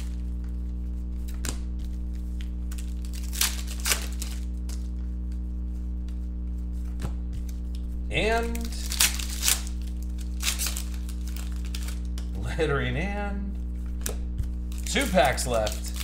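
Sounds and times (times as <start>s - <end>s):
foil wrappers crinkling: 0.0s - 5.4s, 7.4s - 12.4s, 13.8s - 16.0s
low electrical hum: 0.0s - 16.0s.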